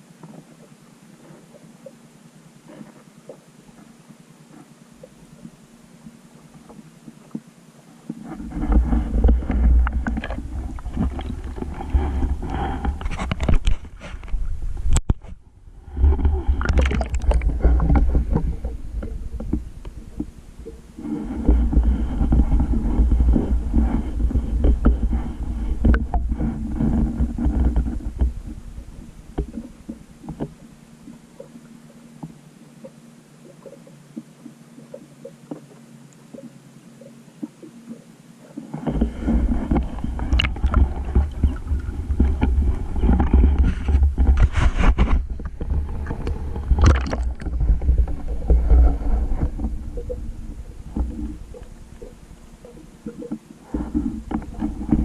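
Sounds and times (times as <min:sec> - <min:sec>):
water sloshing and bubbling: 0:00.0 - 0:55.0
rough low rumble: 0:08.4 - 0:31.5, 0:38.8 - 0:55.0.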